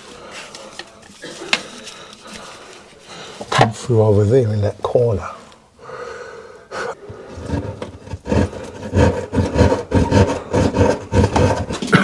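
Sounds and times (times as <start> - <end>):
cable scraping through a hole: 7.3 - 11.9.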